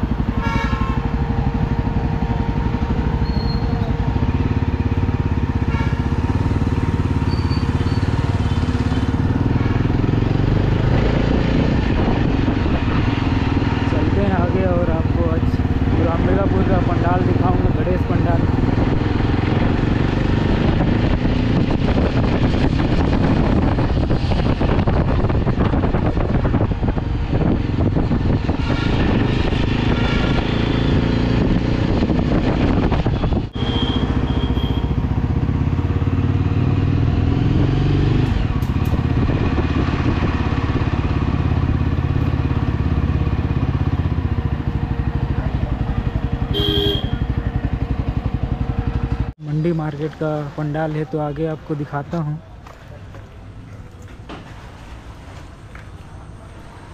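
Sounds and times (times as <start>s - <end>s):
motorcycle engine running: 0.0s - 49.4s
short horn beep: 33.6s - 35.0s, 46.5s - 47.3s.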